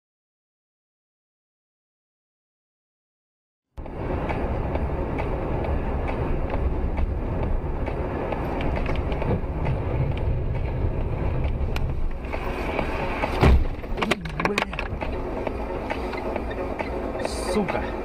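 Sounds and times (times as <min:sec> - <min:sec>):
road and engine rumble: 0:03.8 - 0:18.0.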